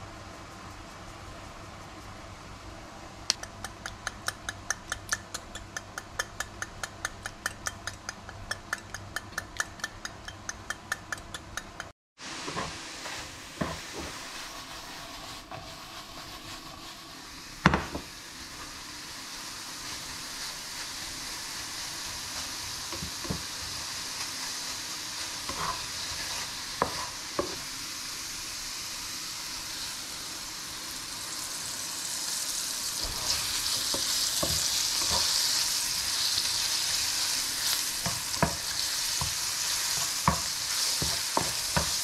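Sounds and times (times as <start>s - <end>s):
spice mill clicking: 3.3s - 11.9s
mushrooms sizzling in a frying pan: 12.2s - 42.0s
spatula stirring: 12.5s - 17.2s, 19.8s - 27.6s, 33.0s - 42.0s.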